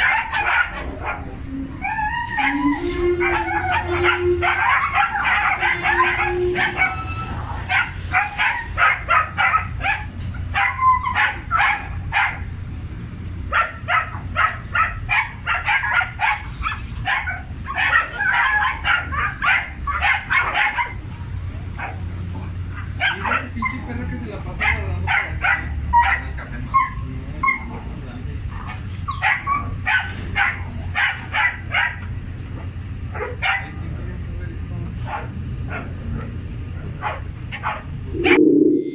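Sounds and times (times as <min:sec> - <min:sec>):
dogs barking and yapping: 0:00.0 - 0:12.6, 0:13.4 - 0:33.9, 0:35.0 - 0:38.4.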